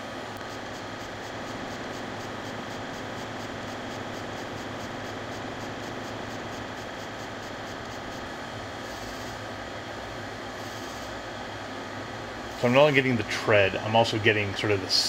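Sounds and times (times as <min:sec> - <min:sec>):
faint fast high pulsing: 0:00.5 - 0:08.2.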